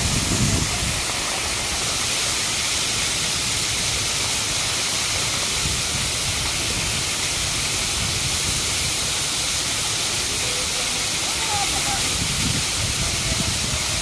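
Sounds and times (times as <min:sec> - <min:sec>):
waterfall splashing onto rocks: 0:00.0 - 0:14.0.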